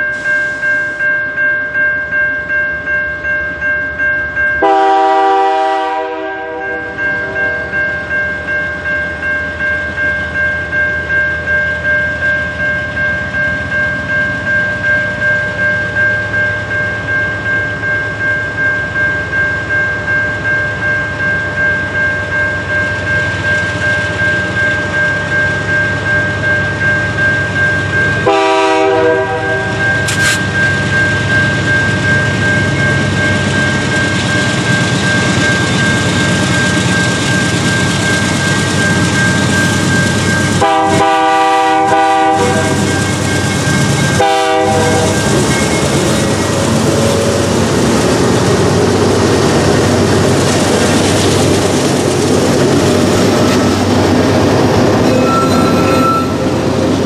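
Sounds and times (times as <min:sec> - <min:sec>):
diesel locomotive engines: 0:00.0 - 0:57.0
train horn blasts: 0:04.6 - 0:07.7, 0:28.2 - 0:29.8, 0:40.6 - 0:42.9, 0:44.1 - 0:45.2
freight cars rumbling and clattering: 0:44.9 - 0:57.0.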